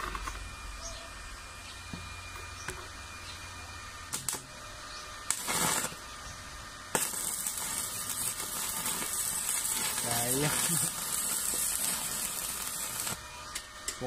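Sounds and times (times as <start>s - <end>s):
welding electrode striking: 0.0s - 0.5s, 4.1s - 4.6s, 5.2s - 6.3s, 6.9s - 14.0s
welding arc hissing: 3.9s - 14.0s.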